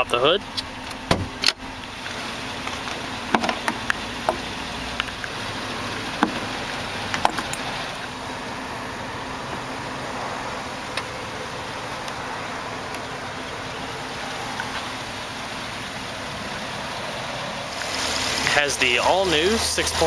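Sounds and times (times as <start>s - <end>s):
hood latch clicking and clacking: 0.5s - 1.6s, 2.6s - 4.4s, 7.1s - 7.7s.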